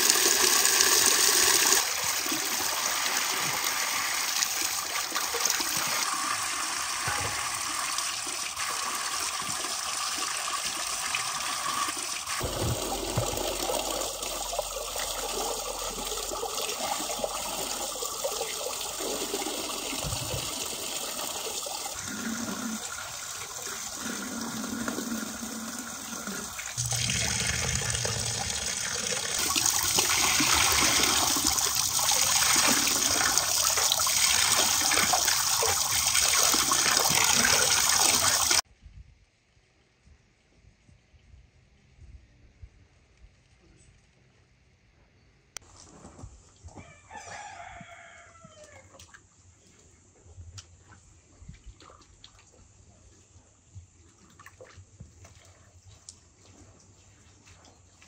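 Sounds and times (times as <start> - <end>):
water pouring into metal pot: 0.0 - 38.6.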